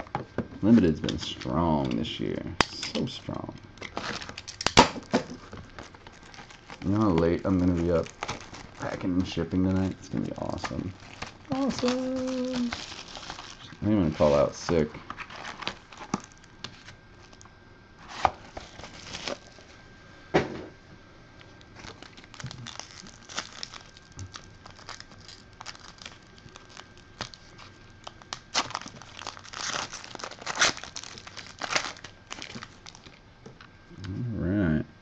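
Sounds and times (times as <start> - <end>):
plastic wrapping crinkling: 3.8 - 19.7, 21.4 - 33.2.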